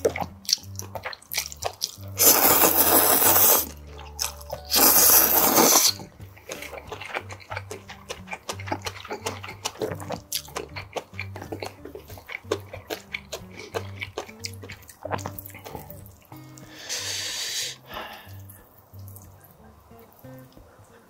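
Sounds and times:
background music with low beat: 0.0 - 21.0
wet chewing clicks: 0.0 - 21.0
loud hiss: 2.2 - 3.7, 4.7 - 6.0, 16.7 - 18.3.

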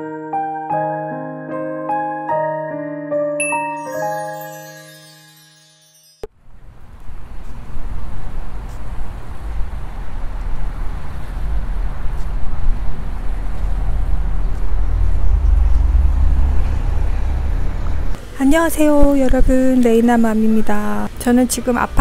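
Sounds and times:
wind buffeting the microphone: 7.3 - 19.8.

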